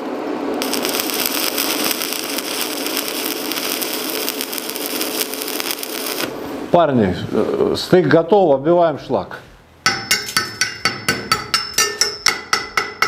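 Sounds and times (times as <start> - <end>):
welding arc crackling: 0.4 - 6.7.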